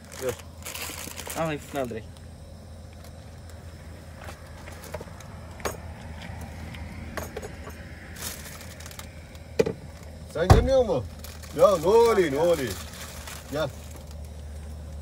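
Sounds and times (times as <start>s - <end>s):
packet crinkle: 0.0s - 2.2s, 8.1s - 9.4s, 11.0s - 15.0s
low steady rumble: 0.0s - 15.0s.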